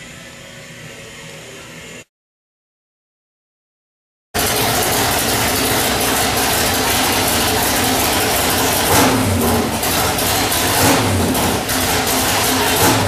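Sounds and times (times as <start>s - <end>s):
engine running through open headers: 4.4s - 13.0s.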